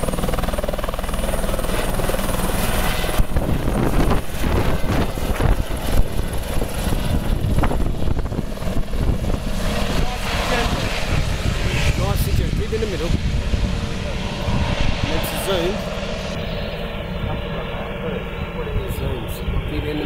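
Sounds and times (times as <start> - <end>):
helicopter engine and rotor whine: 0.0 - 20.0
rotor wash buffeting microphone: 1.4 - 20.0.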